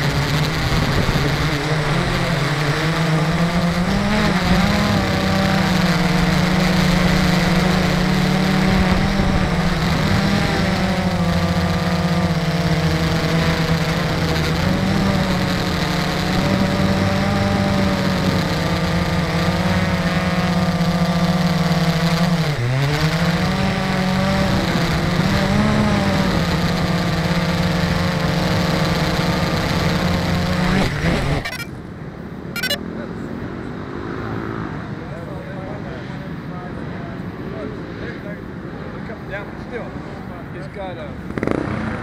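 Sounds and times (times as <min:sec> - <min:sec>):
drone motors humming: 0:00.0 - 0:31.8, 0:32.6 - 0:32.8.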